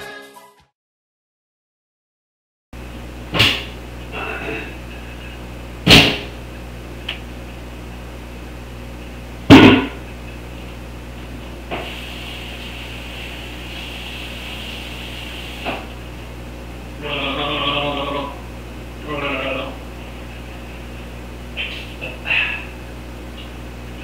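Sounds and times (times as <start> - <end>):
steady hum: 2.8 - 24.0
loud thumps: 5.8 - 6.3, 9.5 - 10.0.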